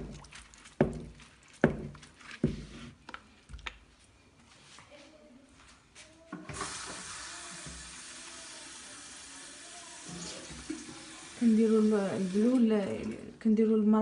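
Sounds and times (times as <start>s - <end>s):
running water: 0.0s - 2.5s, 6.5s - 13.7s.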